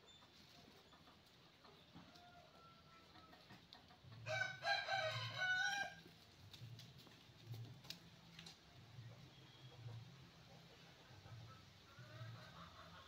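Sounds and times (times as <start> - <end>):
rooster crowing: 2.1 - 3.1, 4.3 - 6.0.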